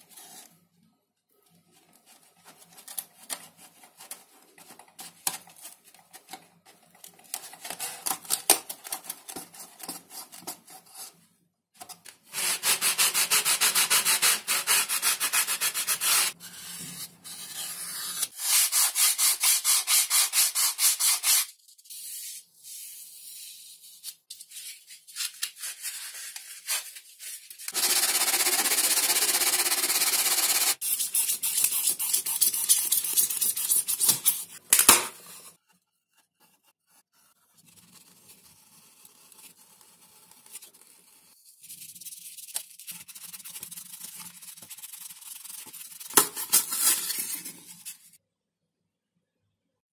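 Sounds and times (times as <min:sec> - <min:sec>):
sandpaper rubbing on foam: 0:12.3 - 0:23.8, 0:25.6 - 0:34.6, 0:36.4 - 0:48.1.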